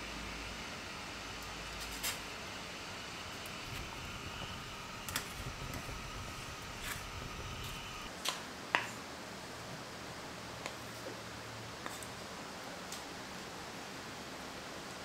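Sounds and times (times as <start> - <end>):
low hum: 0.0 - 8.1.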